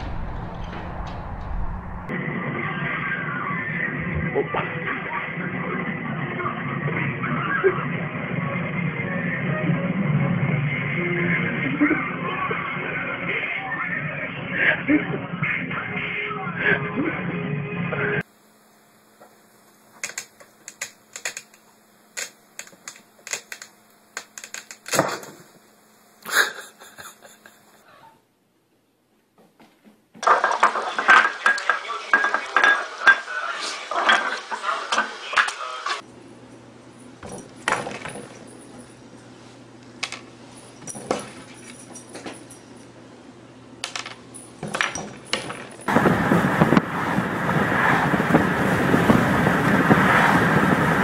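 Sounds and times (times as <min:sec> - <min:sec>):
steady low hum: 0:00.0 - 0:02.2, 0:18.2 - 0:28.6.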